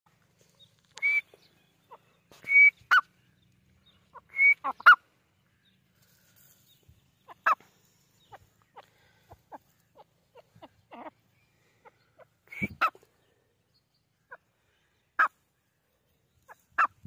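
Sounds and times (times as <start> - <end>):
francolin whistled calls: 1.0 - 1.5, 2.3 - 3.1, 4.1 - 5.0, 12.4 - 12.9.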